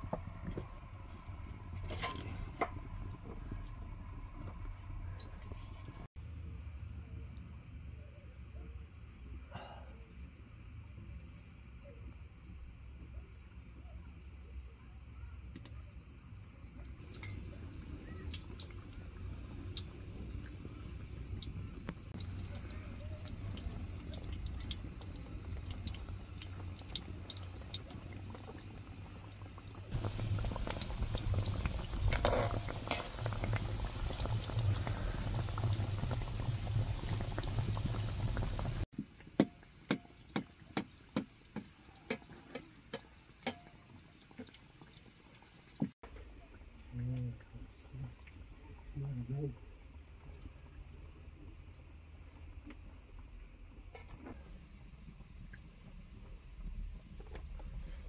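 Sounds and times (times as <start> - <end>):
dough sizzling in hot oil: 17.0 - 46.0.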